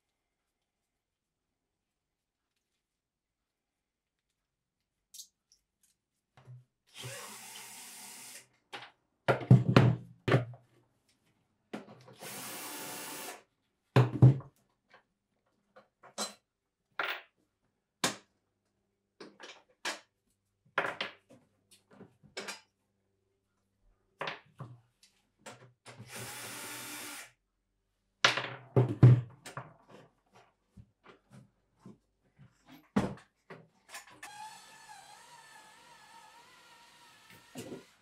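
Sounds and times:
cordless drill running: 7.0 - 8.4, 12.2 - 13.4, 26.1 - 27.3, 34.2 - 38.0.

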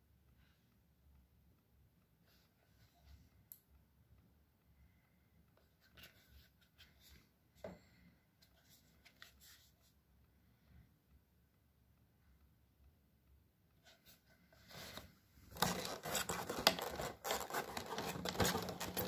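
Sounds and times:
handling clicks and rubs: 13.8 - 19.0.

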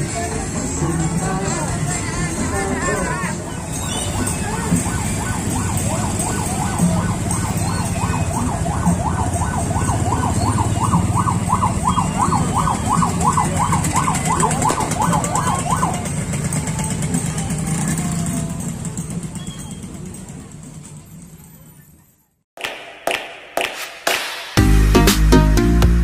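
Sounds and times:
vehicle engines running: 0.0 - 22.2
vehicle siren yelping: 1.5 - 20.1.

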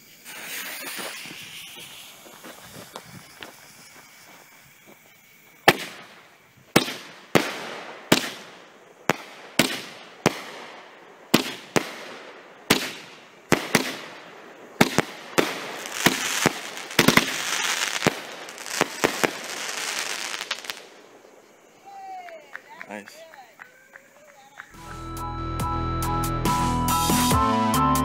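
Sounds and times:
firework launch bangs and bursts: 0.0 - 21.2
hissing crackle: 0.0 - 22.8.

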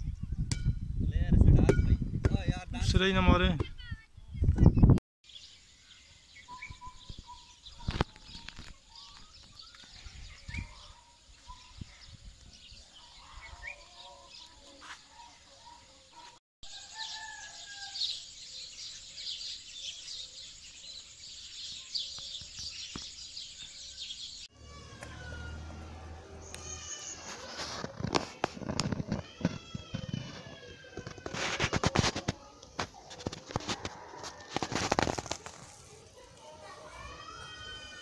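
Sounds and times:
birds chirping and calling: 4.2 - 38.0.

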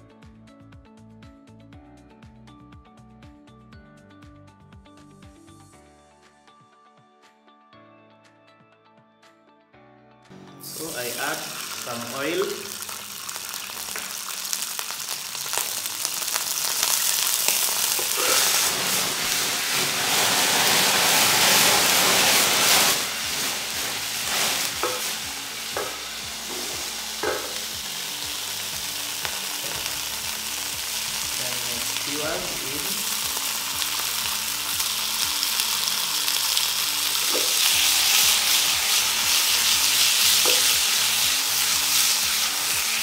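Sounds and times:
hot oil sizzling in a frying pan: 10.6 - 43.0.

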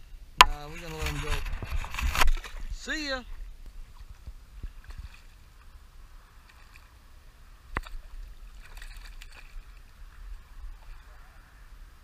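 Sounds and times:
small water splash: 0.5 - 11.6
water sloshing around a kayak: 0.5 - 12.0.

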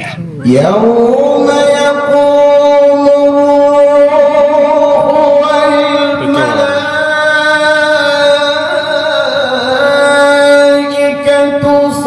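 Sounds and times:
man reciting melodically: 0.4 - 12.0.

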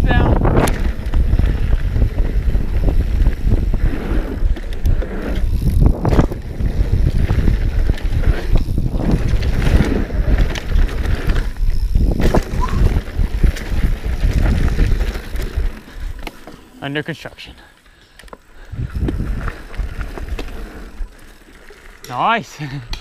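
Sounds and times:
wind buffeting microphone: 0.0 - 16.2, 18.6 - 21.1
knobby tyres rolling on dirt: 0.0 - 22.8
bike landing thuds and rattles: 5.4 - 15.5.

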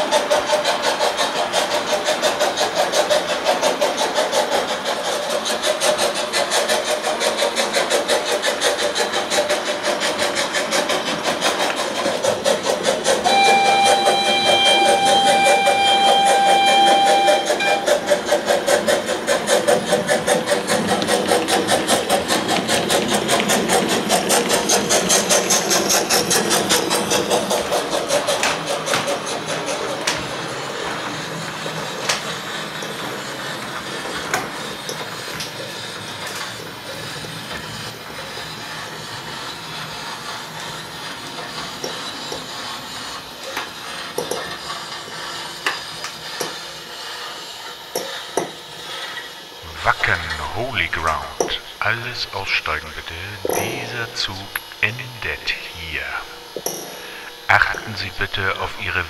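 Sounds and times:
model steam locomotive chuffing: 0.0 - 54.9, 56.1 - 59.0
train whistle: 13.2 - 18.3.

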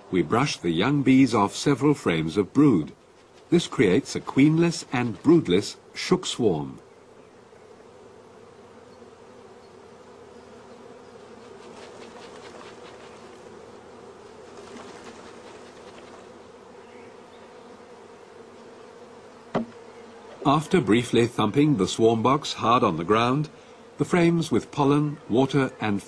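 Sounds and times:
bees buzzing: 0.0 - 26.0
bee brush swishes: 0.6 - 6.8, 9.6 - 26.0
box thumped on ground: 19.5 - 19.8.

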